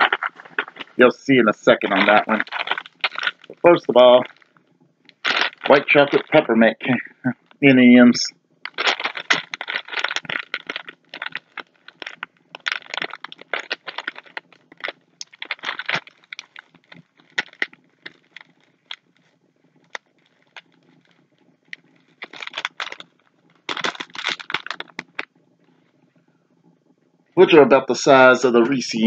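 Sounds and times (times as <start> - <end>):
bag tearing open: 0.0 - 1.0, 1.7 - 4.5, 5.1 - 6.5, 8.7 - 19.0, 22.1 - 23.1, 23.7 - 25.2
plastic candy bag crinkling: 0.0 - 6.7, 8.7 - 25.3.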